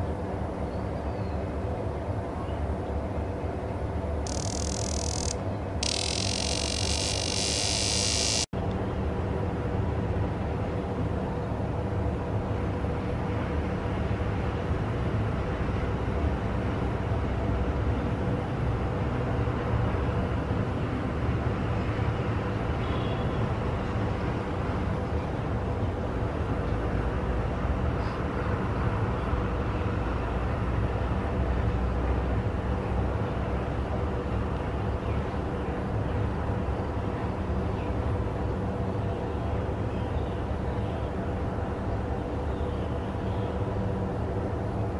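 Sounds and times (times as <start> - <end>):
cicada buzzing: 4.2 - 8.5.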